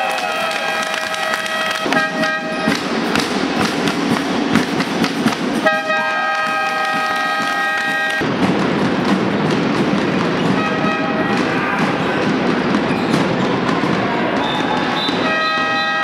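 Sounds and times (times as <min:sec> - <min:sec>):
air horns blowing: 0:00.0 - 0:02.8, 0:05.6 - 0:08.2, 0:10.6 - 0:12.1, 0:14.5 - 0:16.0
claps and knocks: 0:00.0 - 0:16.0
crowd noise: 0:00.0 - 0:16.0.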